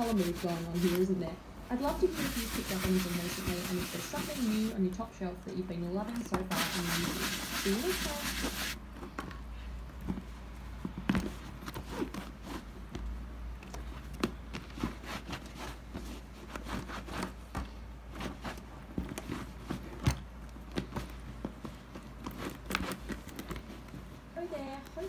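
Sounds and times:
towel rubbing canvas: 0.0s - 1.2s, 1.8s - 4.8s, 6.4s - 8.8s.

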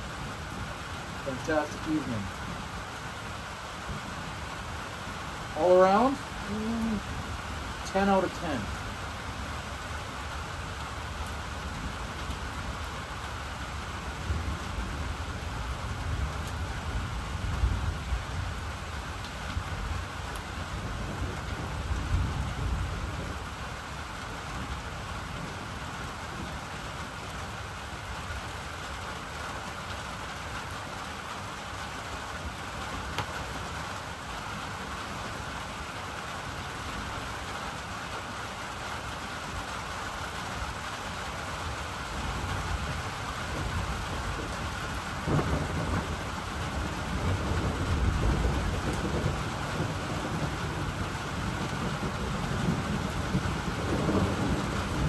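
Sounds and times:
heavy rain pouring: 0.0s - 55.0s
low rumbles of thunder: 14.0s - 23.8s, 42.2s - 55.0s.

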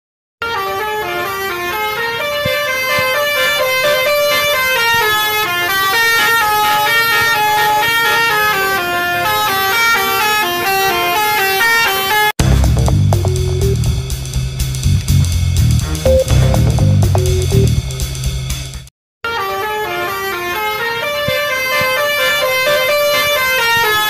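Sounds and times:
multi-tone bus air horn tune: 0.4s - 12.8s, 19.2s - 24.0s.

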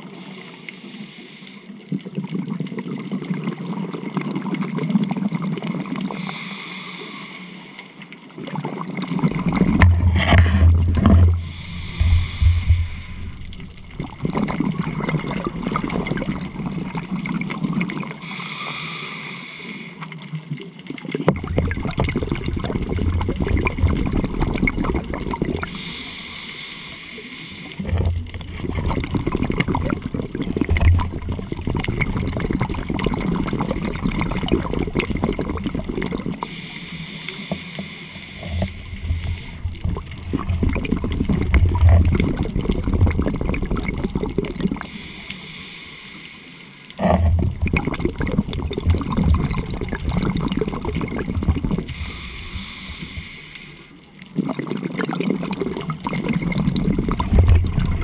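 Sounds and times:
gurgling exhaled bubbles: 1.8s - 7.1s, 8.3s - 45.3s, 47.0s - 58.0s
hissing regulator inhales: 6.2s - 7.9s, 11.4s - 14.0s, 18.2s - 20.1s, 25.6s - 28.1s, 36.4s - 39.8s, 44.8s - 47.0s, 51.9s - 54.0s.

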